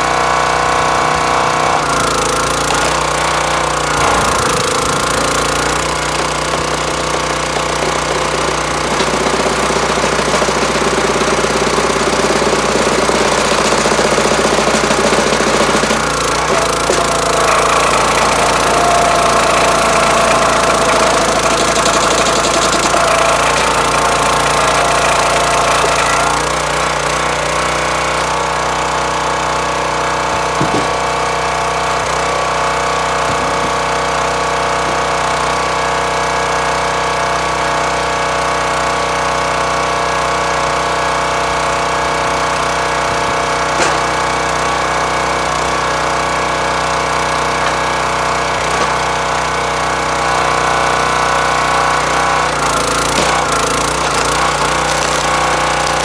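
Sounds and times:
log splitter engine running: 0:00.0 - 0:56.0
split wood knocking: 0:30.5 - 0:31.0, 0:33.2 - 0:33.9, 0:43.7 - 0:44.3, 0:48.6 - 0:49.2, 0:52.7 - 0:56.0.

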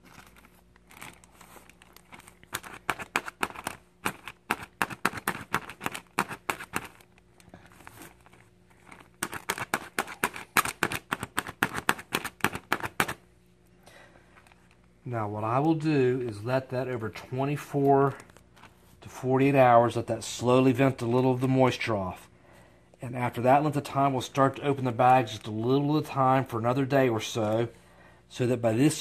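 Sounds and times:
toothpick punching plastic bag: 0:00.0 - 0:08.2, 0:08.8 - 0:13.2.

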